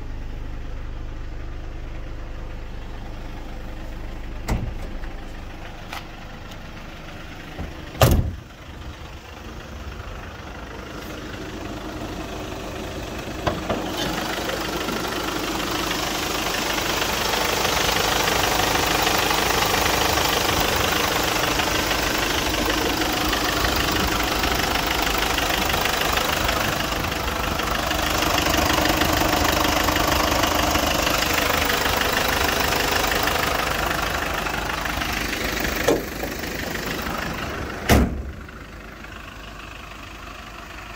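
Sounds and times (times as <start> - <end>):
diesel engine idling: 0.0 - 40.9
door shutting: 4.4 - 5.0, 7.6 - 8.4, 37.9 - 38.3.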